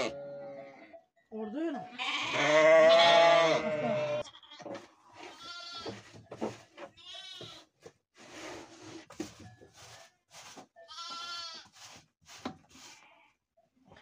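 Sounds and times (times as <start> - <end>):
sheep and lambs bleating: 0.0 - 1.0, 1.8 - 6.1, 6.9 - 7.7, 10.9 - 11.7.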